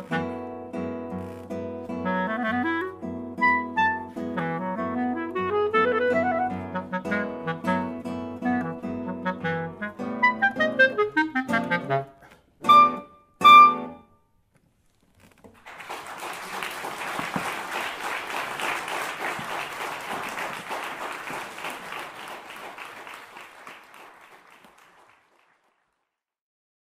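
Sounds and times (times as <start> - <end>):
clarinet and guitar playing: 0.0 - 14.2
audience applause: 15.6 - 26.1.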